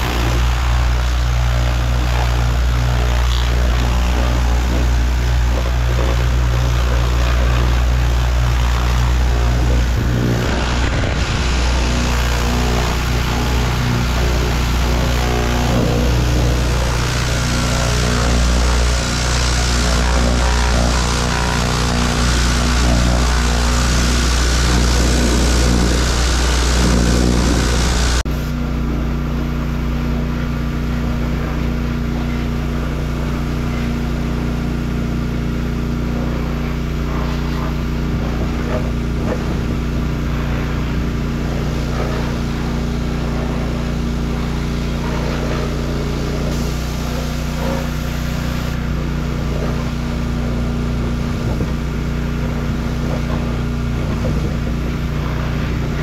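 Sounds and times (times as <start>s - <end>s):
pressure washer engine running: 0.0s - 56.0s
water spray hissing: 20.7s - 28.5s, 43.9s - 48.8s.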